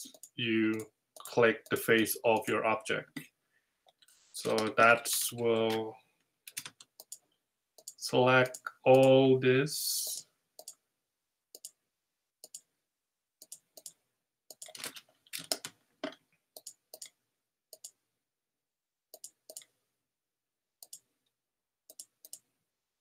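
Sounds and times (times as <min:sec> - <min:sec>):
computer mouse clicking: 0:06.5 - 0:07.2, 0:07.8 - 0:09.2, 0:13.4 - 0:15.8, 0:16.6 - 0:18.0, 0:19.1 - 0:19.7, 0:20.8 - 0:21.1, 0:21.9 - 0:22.5.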